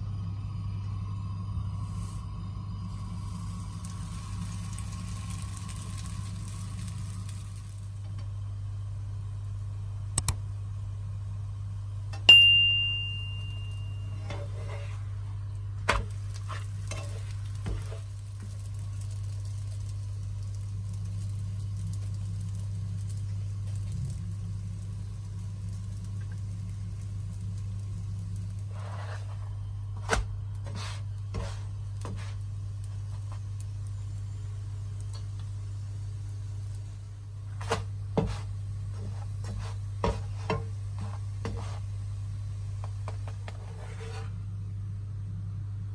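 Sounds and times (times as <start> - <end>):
flatbread sizzling in a pan: 0.0 - 10.1, 13.0 - 44.4
steady low hum: 0.0 - 45.9
sharp ringing clink: 12.3 - 13.9.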